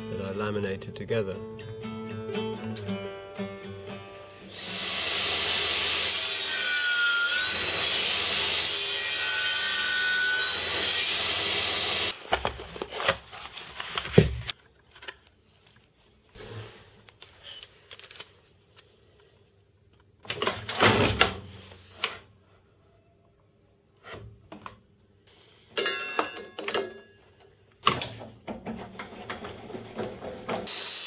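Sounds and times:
power saw cutting wood: 4.5 - 12.1, 30.1 - 31.0.

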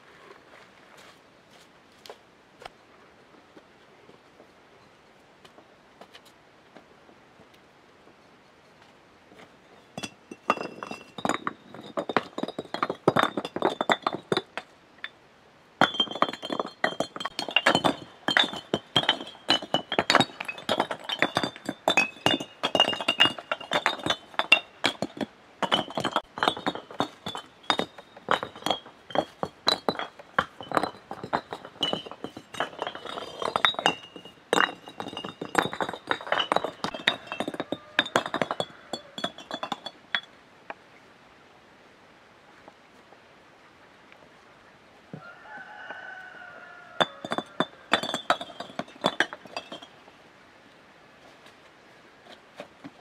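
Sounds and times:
bricks clinking together: 9.7 - 15.2, 15.8 - 40.4, 47.0 - 50.0.

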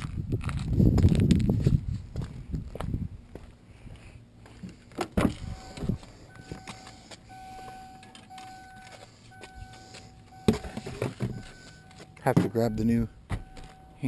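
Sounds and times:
car warning chime beeping: 5.4 - 14.0
knocks and clunks: 10.4 - 13.9.

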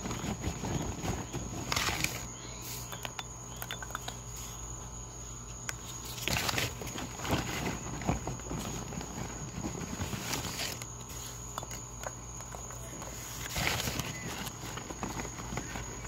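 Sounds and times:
charcoal clicks and taps: 2.9 - 4.2.

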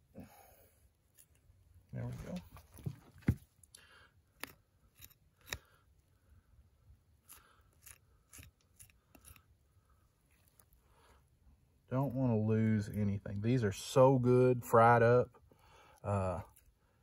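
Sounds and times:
knife scraping meat: 7.2 - 9.5.

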